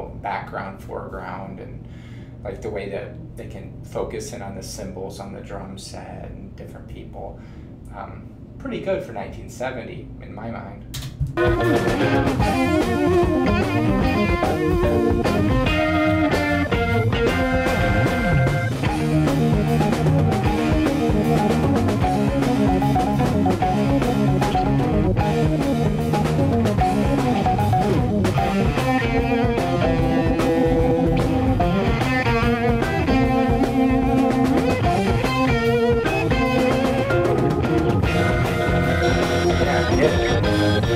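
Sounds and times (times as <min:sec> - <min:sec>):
rock band playing: 0:11.4 - 0:40.9.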